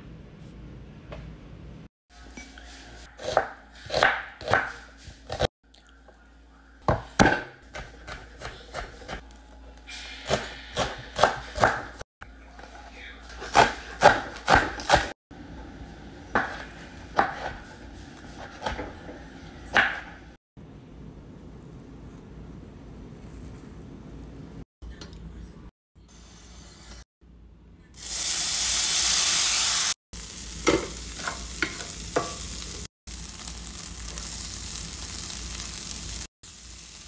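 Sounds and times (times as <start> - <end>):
knife chopping on cutting board: 3.2 - 5.5, 10.3 - 12.0, 13.4 - 15.1, 16.3 - 18.9.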